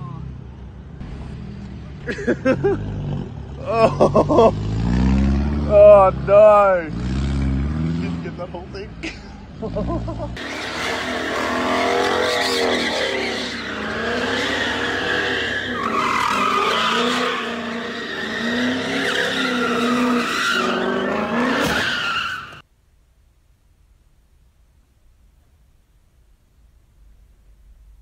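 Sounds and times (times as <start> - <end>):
car engine revving: 2.6 - 8.7, 9.5 - 22.6
tyres squealing: 10.4 - 22.6.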